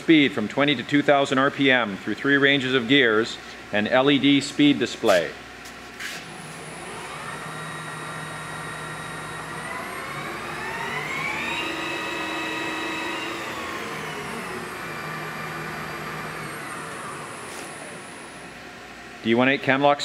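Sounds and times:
lathe spindle whine: 6.2 - 19.2.

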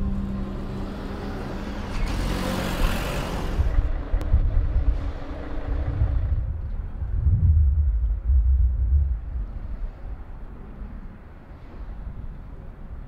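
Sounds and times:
vehicle passing: 0.0 - 11.0
engine running with steady hum: 0.0 - 11.2
low rumble: 3.5 - 13.0.

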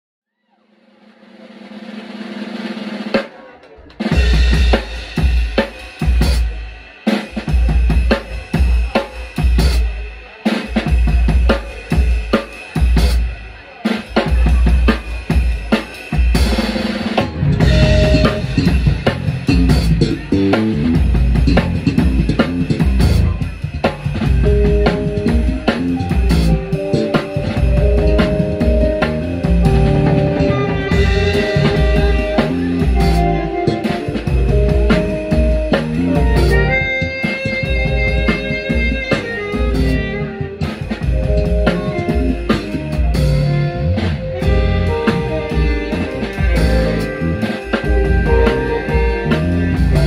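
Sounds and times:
drum kit: 0.7 - 50.0
jazz fusion band playing: 2.6 - 50.0
bass: 4.0 - 6.7, 7.3 - 10.0, 14.1 - 50.0
keyboard chords: 13.6 - 50.0.

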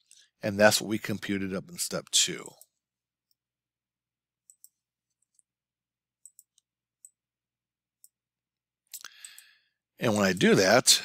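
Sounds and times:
mouse and keyboard clicks: 6.2 - 7.2.

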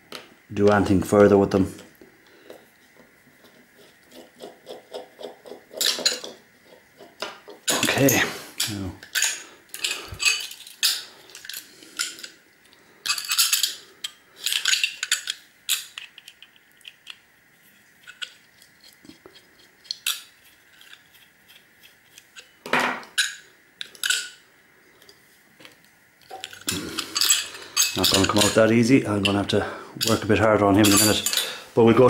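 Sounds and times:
metallic clicks and clinks: 26.3 - 28.6, 30.0 - 31.5.

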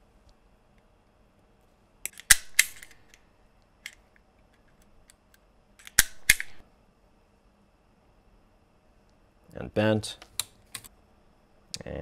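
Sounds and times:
wire stripper clamping and snapping: 5.8 - 6.6.

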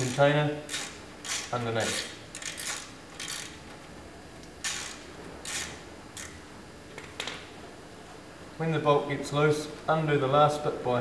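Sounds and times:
socket ratchet clicking: 0.0 - 3.6, 4.6 - 6.4.

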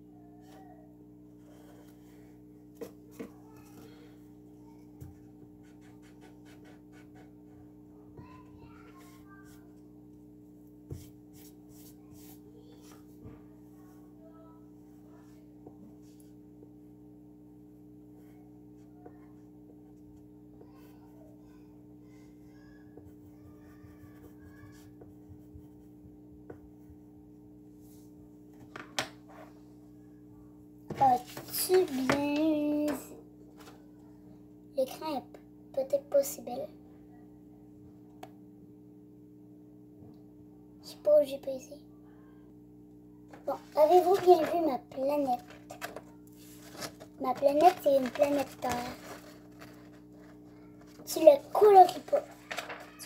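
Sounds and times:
low electrical hum: 0.0 - 53.0
pencil scratching on paper: 5.6 - 7.6
pencil strokes on paper: 5.6 - 7.6, 10.9 - 13.1.

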